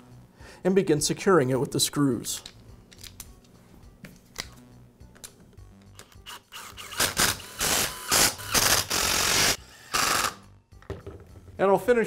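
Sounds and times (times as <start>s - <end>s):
impact driver driving screws: 6.2s - 10.4s.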